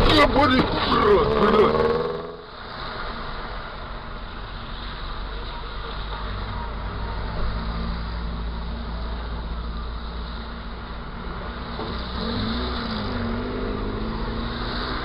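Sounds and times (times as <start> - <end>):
vehicle passing by: 0.0 - 3.5, 11.3 - 15.0
low engine rumble of traffic: 0.0 - 15.0.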